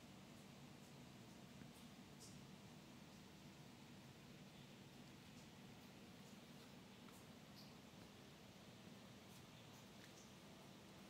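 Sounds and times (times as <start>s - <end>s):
soft hiss: 0.0s - 11.0s
steady low hum: 0.0s - 11.0s.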